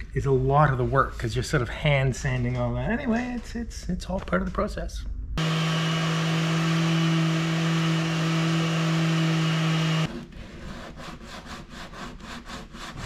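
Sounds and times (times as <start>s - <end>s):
orbital sander humming: 5.4s - 10.1s
hand sanding strokes: 5.4s - 13.0s.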